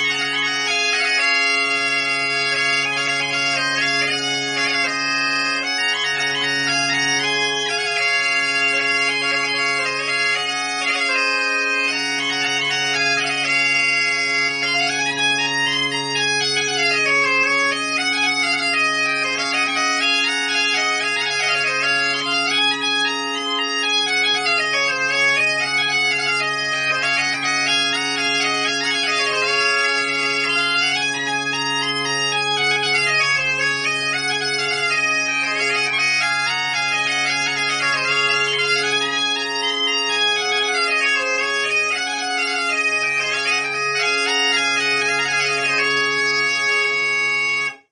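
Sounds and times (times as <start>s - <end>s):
bagpipe chanter melody: 0.0s - 47.9s
bagpipe drone: 0.0s - 47.9s.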